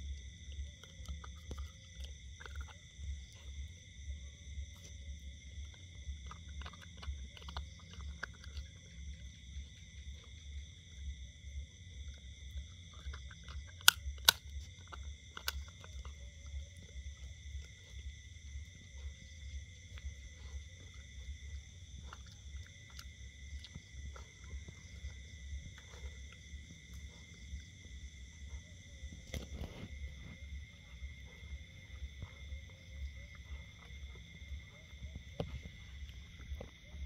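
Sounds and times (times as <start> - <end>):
dog gnawing bone crunching: 0.0 - 37.0
sharp bone cracks: 13.7 - 15.6.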